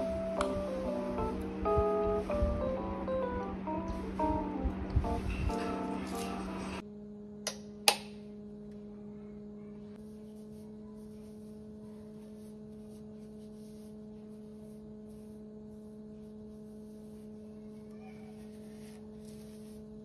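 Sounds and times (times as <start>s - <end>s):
steady hum: 0.0s - 20.0s.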